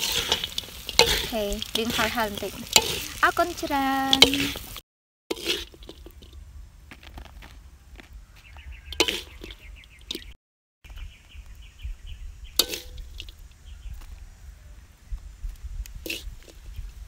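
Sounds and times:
metal spatula scraping a wok: 0:00.0 - 0:06.4, 0:08.9 - 0:10.3, 0:12.6 - 0:13.2, 0:16.0 - 0:16.6.

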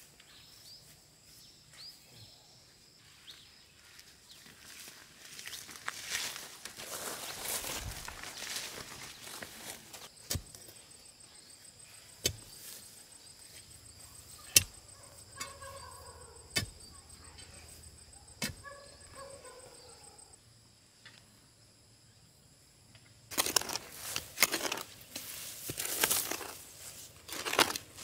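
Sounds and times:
hoe chopping and scraping dirt: 0:07.8 - 0:10.8, 0:12.2 - 0:12.8, 0:14.4 - 0:14.8, 0:16.5 - 0:16.9, 0:18.4 - 0:18.6, 0:23.3 - 0:28.0
digging pole thudding into soil: 0:10.2 - 0:10.6, 0:12.2 - 0:12.6, 0:27.3 - 0:28.0.

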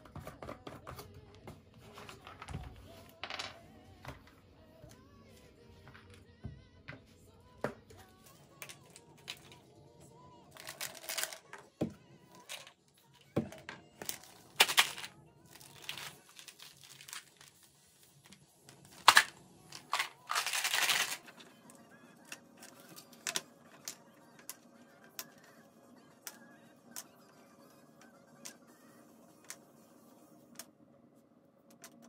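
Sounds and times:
pill bottle shaken: 0:14.1 - 0:17.6, 0:18.9 - 0:21.4
plastic bottle caps clicking: 0:19.0 - 0:21.2.

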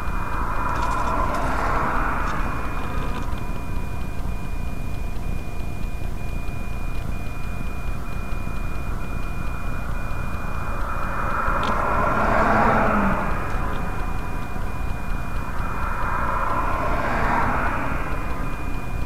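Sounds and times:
passing vehicle on highway: 0:00.0 - 0:04.6, 0:09.5 - 0:19.0
faint high intermittent tone: 0:00.0 - 0:19.0
low rumble of stopped car: 0:00.0 - 0:19.0
wind: 0:00.0 - 0:19.0.

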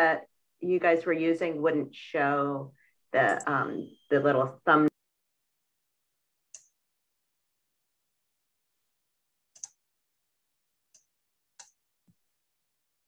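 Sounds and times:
computer clicks: 0:09.6 - 0:09.8.

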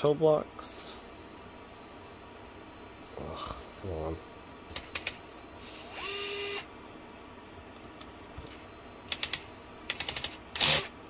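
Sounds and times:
cordless driver whirring: 0:05.6 - 0:06.7, 0:10.0 - 0:10.9.

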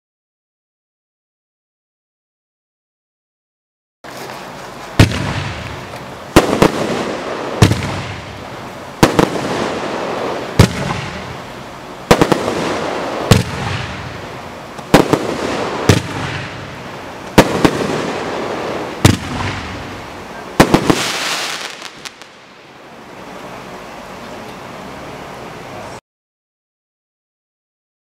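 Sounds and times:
firework bangs: 0:04.1 - 0:22.8
hissing and crackling bursts: 0:04.1 - 0:24.6.

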